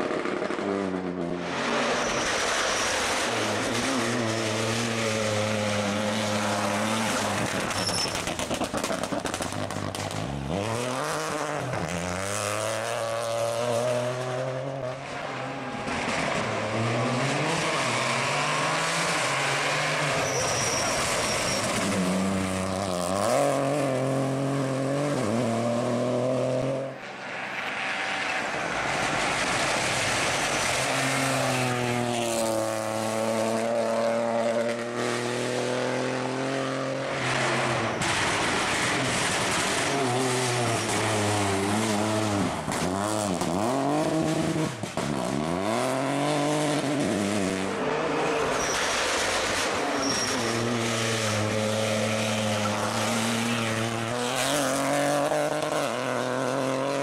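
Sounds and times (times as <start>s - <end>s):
rally car engine revving: 0.0s - 27.0s, 27.6s - 57.0s.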